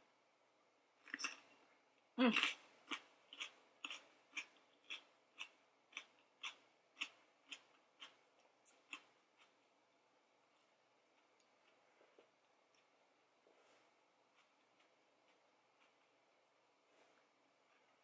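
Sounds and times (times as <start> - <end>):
person chewing crisp pepper: 2.3 - 9.6, 14.2 - 16.2.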